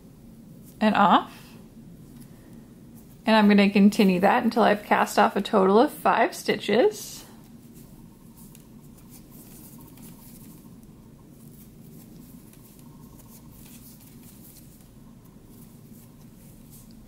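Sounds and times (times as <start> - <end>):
low steady hum: 0.0 - 17.0
knitting needles clicking and scraping: 7.7 - 10.8, 11.4 - 17.0.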